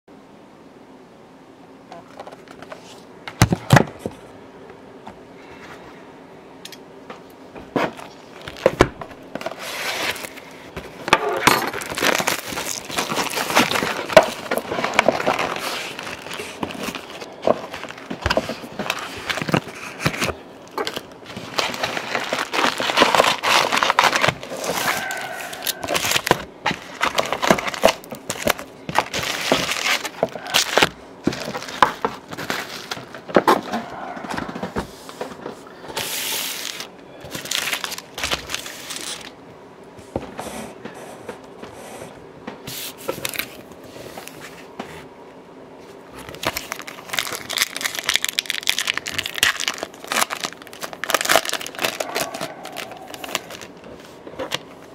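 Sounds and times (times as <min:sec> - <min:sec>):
cellophane wrap crinkling: 0:07.9 - 0:34.6, 0:35.9 - 0:39.4, 0:42.7 - 0:44.4, 0:46.2 - 0:54.9.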